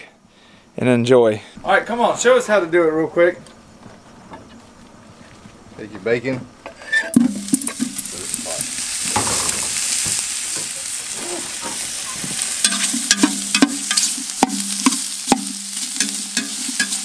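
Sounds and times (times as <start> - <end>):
metal utensil scraping a pot: 6.8 - 7.8
bacon sizzling in a pot: 6.9 - 17.0.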